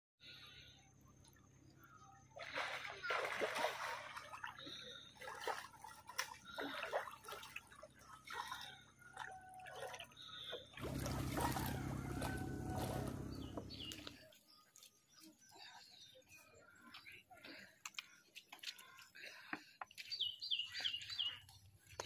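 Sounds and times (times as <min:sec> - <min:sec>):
creek water trickling: 0:01.8 - 0:15.8
low rumble: 0:10.8 - 0:14.2.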